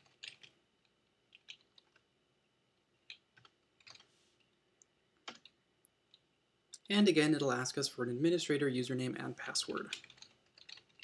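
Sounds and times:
computer keyboard keystrokes: 0:00.0 - 0:00.5, 0:01.3 - 0:02.0, 0:03.1 - 0:04.1, 0:05.2 - 0:05.6, 0:09.7 - 0:11.0.

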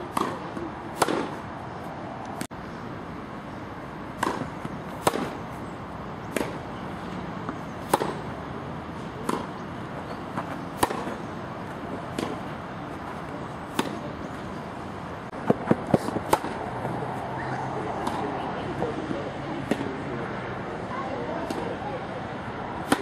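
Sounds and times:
tennis ball struck and bouncing: 0:00.0 - 0:01.4, 0:04.2 - 0:05.5, 0:06.3 - 0:06.7, 0:07.4 - 0:08.4, 0:09.2 - 0:11.3, 0:12.0 - 0:12.6, 0:13.2 - 0:14.0, 0:15.3 - 0:17.0, 0:22.8 - 0:23.0.

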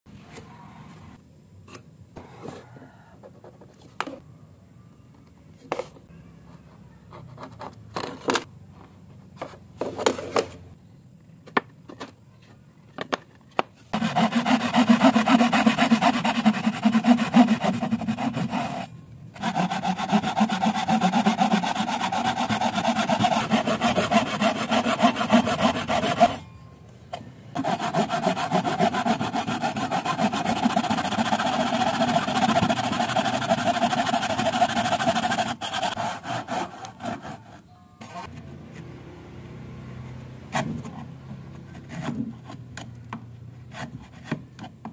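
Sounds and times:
power saw cutting wood: 0:14.0 - 0:18.8, 0:19.4 - 0:26.4, 0:27.6 - 0:37.1.

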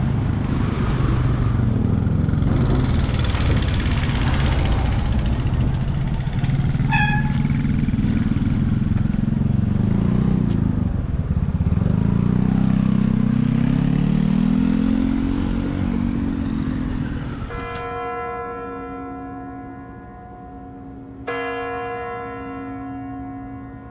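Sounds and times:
motorcycle engine revving: 0:00.0 - 0:17.6
horn beep: 0:06.8 - 0:07.6.

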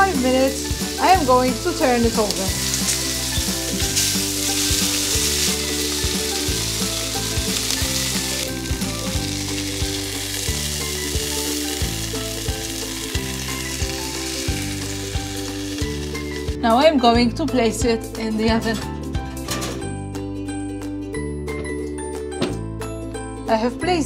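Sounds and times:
background music: 0:00.0 - 0:24.0
steaks sizzling in a pan: 0:00.1 - 0:16.6.

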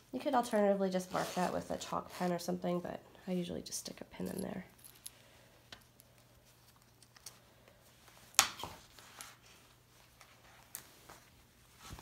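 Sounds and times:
fabric rustling: 0:00.9 - 0:02.4, 0:08.0 - 0:12.0.

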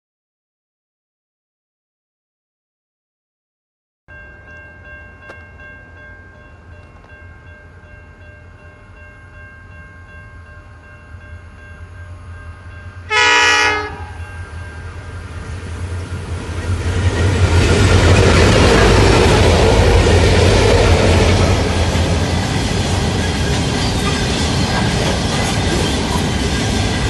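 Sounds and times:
train wheels on rails: 0:10.8 - 0:27.0
train horn blast: 0:13.0 - 0:14.4
locomotive engines: 0:13.9 - 0:27.0.

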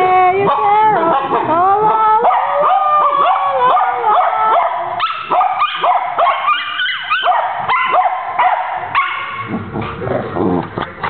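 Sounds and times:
person singing: 0:00.0 - 0:04.6
dogs yipping and howling: 0:02.2 - 0:09.5.

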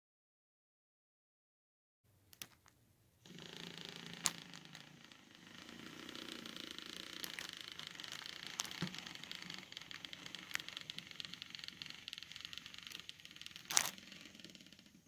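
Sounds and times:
model train motor hum: 0:03.3 - 0:15.0
wheels running on rails: 0:03.3 - 0:15.0
sharp clicks: 0:06.5 - 0:15.0.

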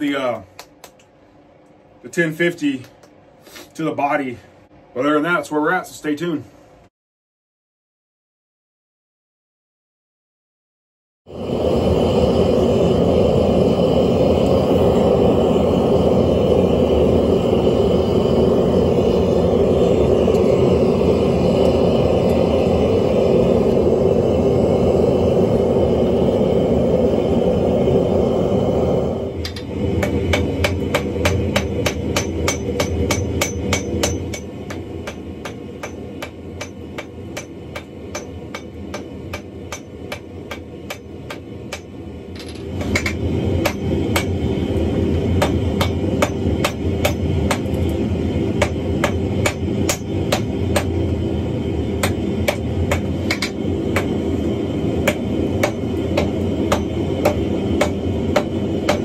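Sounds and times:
gas forge roaring: 0:11.3 - 0:59.0
hammer striking iron on anvil: 0:29.5 - 0:41.9, 0:42.8 - 0:44.4, 0:45.4 - 0:47.8, 0:48.6 - 0:51.0, 0:52.0 - 0:54.2, 0:55.0 - 0:59.0.

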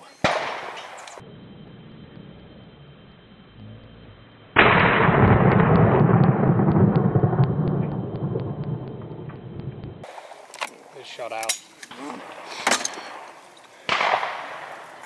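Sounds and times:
shotgun shot: 0:00.2 - 0:01.2, 0:13.9 - 0:14.8
rolling rumble: 0:00.4 - 0:11.2.

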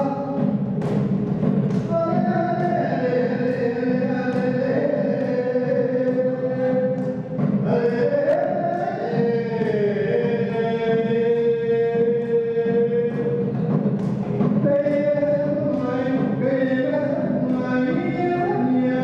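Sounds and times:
hand drum: 0:00.0 - 0:19.0
men singing long held notes: 0:00.0 - 0:19.0.

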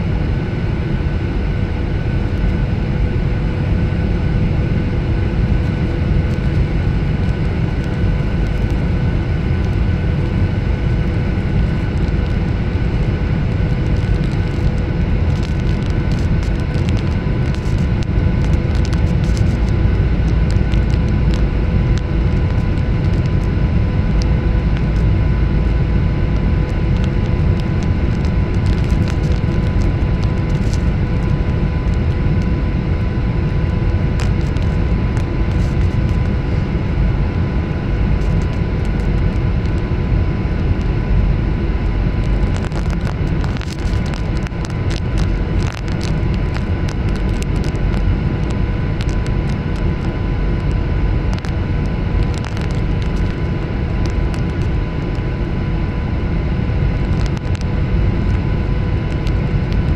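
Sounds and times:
engine and airflow rumble: 0:00.0 - 0:59.9
steady tonal hum: 0:00.0 - 0:59.9.

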